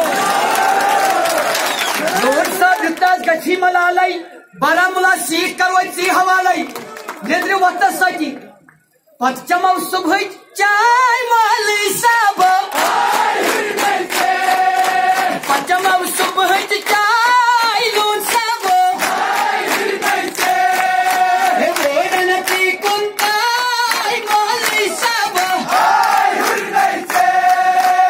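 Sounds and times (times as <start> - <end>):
rhythmic hand-clapping: 0.0 - 3.5, 6.6 - 7.6, 12.1 - 28.0
crowd chanting in unison: 11.4 - 28.0.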